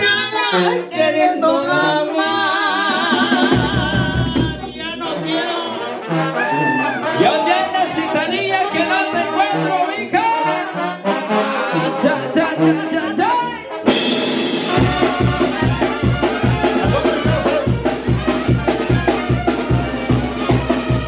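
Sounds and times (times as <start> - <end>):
trombones and trumpets melody: 0.0 - 21.0
bass and drum beat: 2.9 - 5.0, 13.9 - 21.0.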